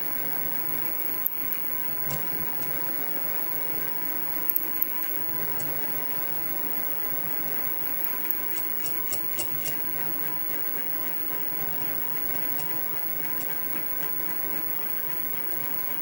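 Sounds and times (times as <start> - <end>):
sharp ticks from cutting: 4.4 - 5.1, 8.0 - 10.7.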